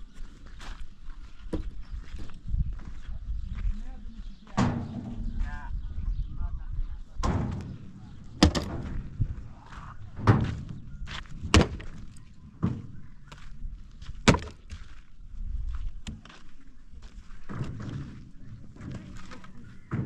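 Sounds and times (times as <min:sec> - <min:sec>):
heavy knocks and thuds: 0:04.5 - 0:05.6, 0:07.2 - 0:13.1, 0:14.1 - 0:14.8.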